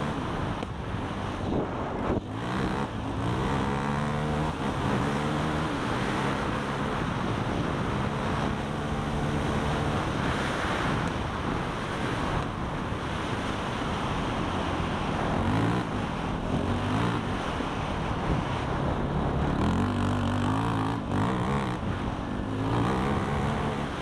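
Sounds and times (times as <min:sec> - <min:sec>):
vehicle engine revving: 0:00.0 - 0:00.6, 0:01.2 - 0:12.5, 0:14.6 - 0:24.0
wind noise on microphone: 0:00.0 - 0:24.0.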